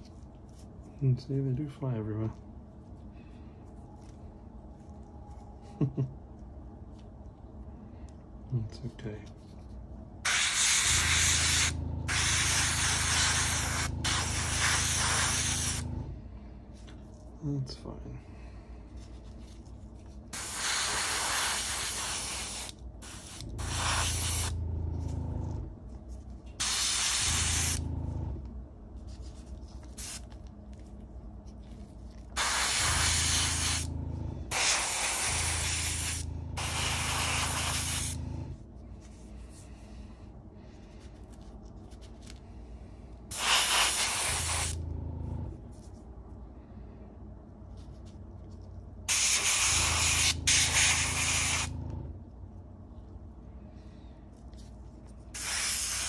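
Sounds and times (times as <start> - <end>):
low hum: 0.0 - 20.5, 22.0 - 55.4
airbrush spraying hiss: 10.2 - 15.8, 20.3 - 24.6, 26.6 - 27.8, 30.0 - 30.2, 32.4 - 33.9, 34.5 - 38.2, 43.3 - 44.8, 49.1 - 51.7, 55.3 - 56.0.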